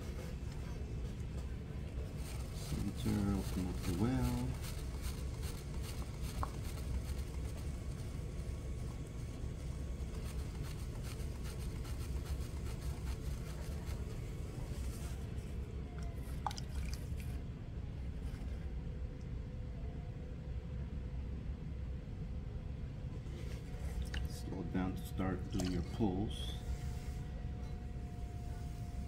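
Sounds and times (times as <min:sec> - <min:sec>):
potter's wheel humming: 0:00.0 - 0:18.9, 0:23.1 - 0:29.0
wet clay rubbing: 0:02.2 - 0:07.6.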